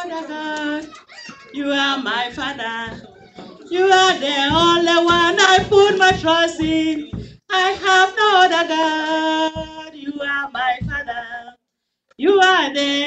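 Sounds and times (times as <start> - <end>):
group singing a worship song: 1.8 - 10.0.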